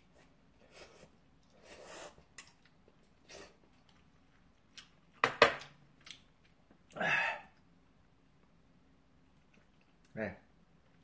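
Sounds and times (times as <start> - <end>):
slurping noodles: 0.7 - 2.3
chewing: 1.0 - 5.2, 6.0 - 7.0, 9.2 - 10.1.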